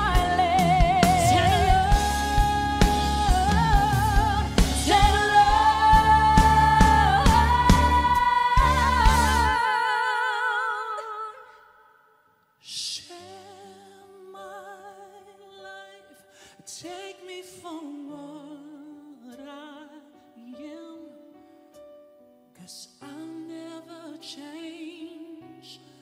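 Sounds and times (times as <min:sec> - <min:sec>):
band with drums and bass: 0:00.0 - 0:09.6
woman singing with vibrato: 0:00.0 - 0:21.2.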